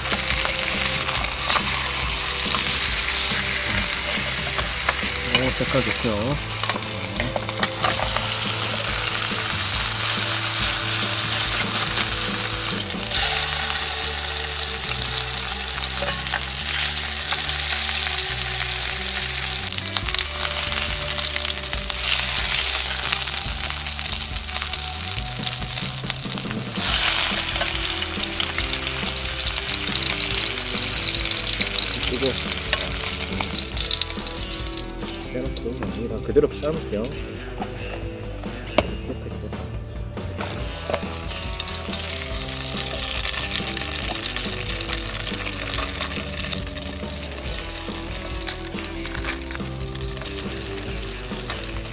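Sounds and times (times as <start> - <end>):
meat sizzling in a pan: 0.0 - 37.0, 40.4 - 51.9
metal tongs scraping meat: 0.1 - 18.2, 26.3 - 34.1.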